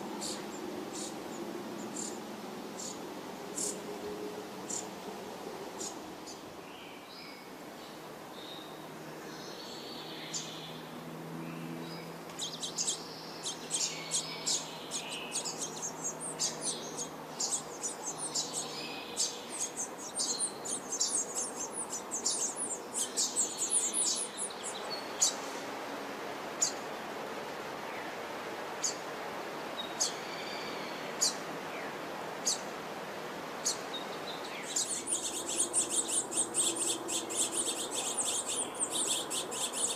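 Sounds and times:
nestlings begging with chirps: 0.0s - 2.2s, 2.8s - 3.8s, 4.6s - 4.9s, 5.8s - 6.4s, 11.9s - 25.6s, 26.6s - 26.8s, 29.8s - 32.7s, 33.6s - 39.9s.

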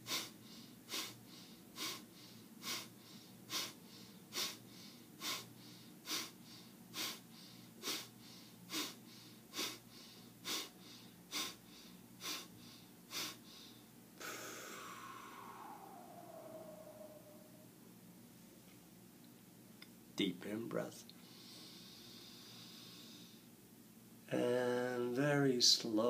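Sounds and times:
man exhaling forcefully: 3.5s - 4.6s, 5.2s - 5.5s, 7.8s - 8.1s, 8.7s - 9.8s, 10.4s - 11.6s, 13.1s - 17.6s
long breath with falling whistle: 13.2s - 17.7s.

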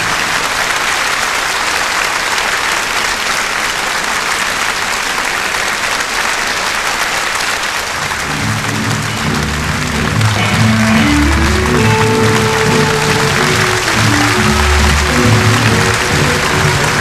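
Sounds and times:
audience applauding: 0.0s - 17.0s
music: 8.0s - 17.0s.

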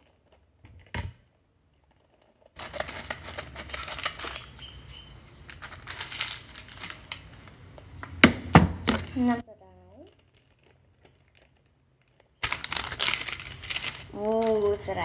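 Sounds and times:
plastic packet crinkling and tearing: 1.9s - 7.7s, 9.9s - 14.8s.

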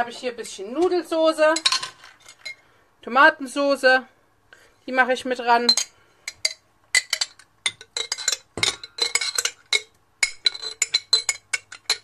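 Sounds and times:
metal spoon clinking in glass jar: 1.6s - 2.6s, 5.7s - 12.0s.

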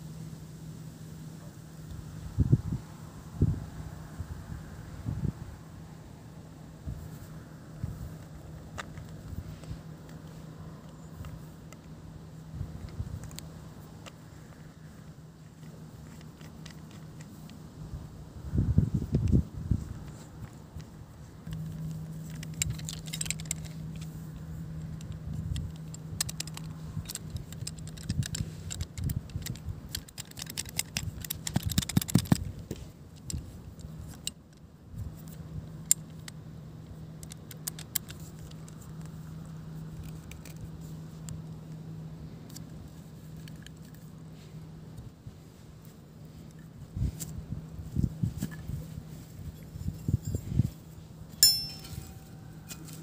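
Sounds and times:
low steady hum: 0.0s - 53.0s
metal and plastic clicks and rattles: 15.4s - 17.6s, 19.1s - 41.5s, 42.5s - 44.1s.

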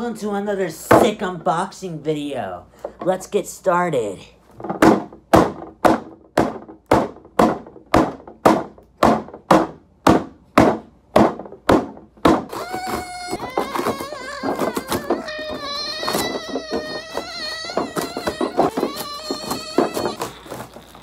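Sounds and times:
knocks: 4.6s - 21.0s
fists pounding cardboard box: 4.7s - 21.0s.

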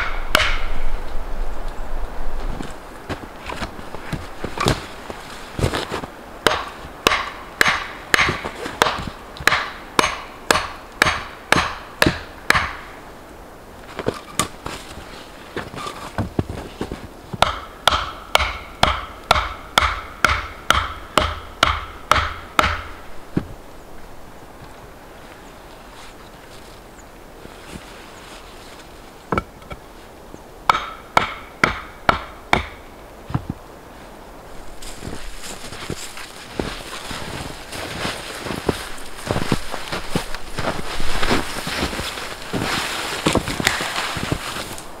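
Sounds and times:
hand tool striking log: 0.0s - 0.8s, 6.4s - 12.9s, 17.4s - 23.5s, 30.7s - 33.5s, 43.3s - 44.0s.

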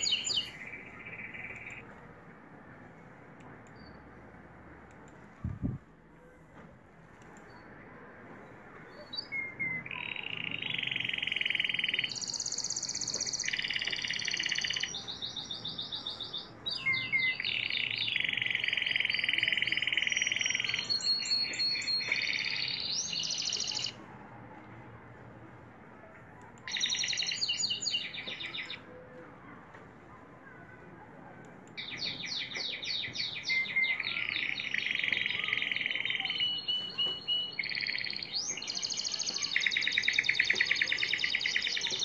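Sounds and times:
canary singing trills: 0.0s - 1.9s, 8.9s - 24.0s, 26.6s - 29.1s, 31.8s - 42.0s.

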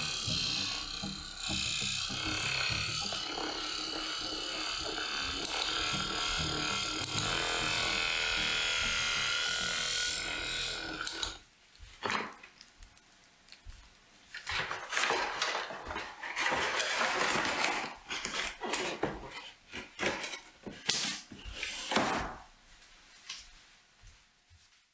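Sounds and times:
things rustling and clattering: 13.7s - 23.6s.

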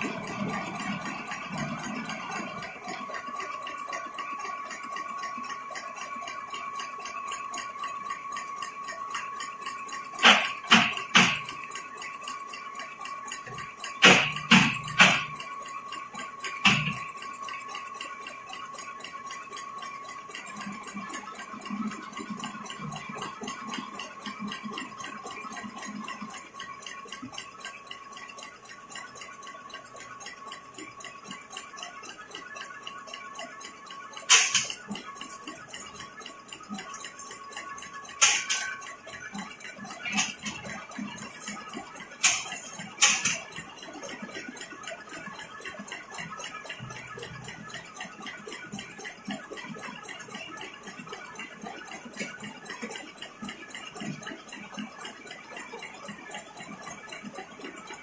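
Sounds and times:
machine clicking fast: 0.0s - 58.0s
steady machine whine: 0.0s - 58.0s
sharp metallic knocks: 10.2s - 11.6s, 13.5s - 15.4s, 16.6s - 17.0s, 34.3s - 34.8s, 38.2s - 38.8s, 42.2s - 43.5s.

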